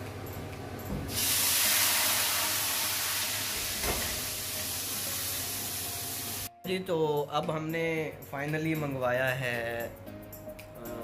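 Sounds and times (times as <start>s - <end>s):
water hissing on hot pan: 1.1s - 6.5s.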